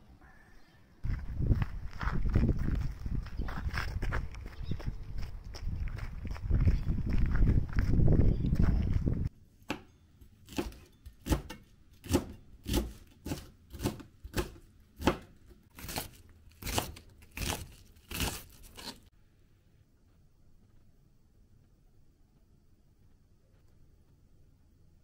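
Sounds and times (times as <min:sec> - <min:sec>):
knife chopping on plastic board: 0:10.5 - 0:18.9.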